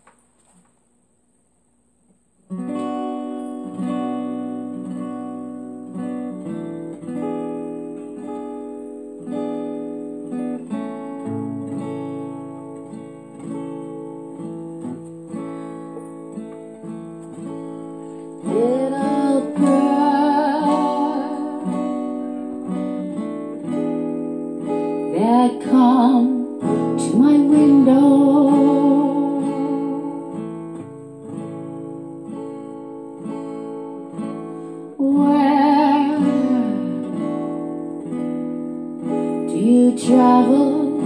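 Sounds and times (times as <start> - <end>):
acoustic guitar playing: 2.2 - 41.0
person singing: 18.4 - 22.2, 25.0 - 30.5, 35.0 - 37.5, 39.3 - 41.0.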